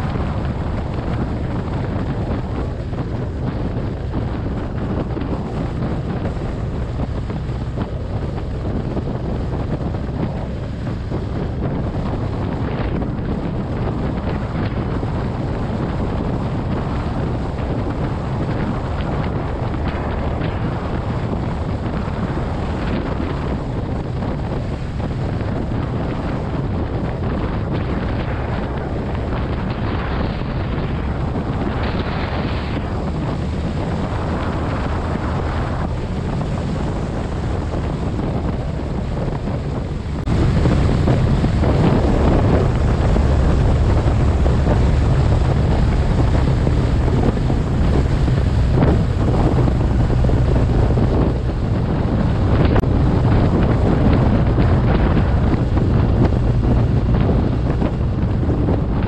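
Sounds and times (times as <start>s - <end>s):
motorcycle engine running: 0.0s - 59.0s
wind noise on microphone: 0.0s - 59.0s.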